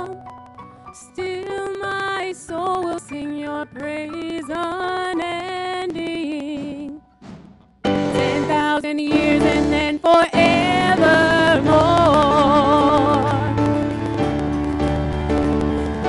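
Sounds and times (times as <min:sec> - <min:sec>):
women singing a worship song: 0:08.1 - 0:13.6.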